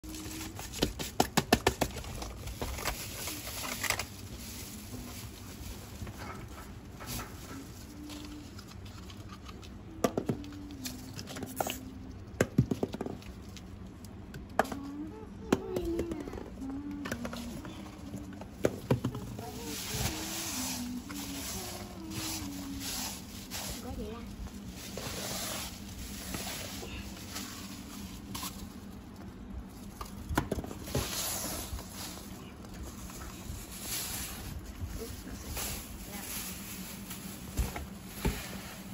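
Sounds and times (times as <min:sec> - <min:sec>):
hamsters rustling in wood shavings: 0:02.1 - 0:09.8, 0:17.3 - 0:38.9.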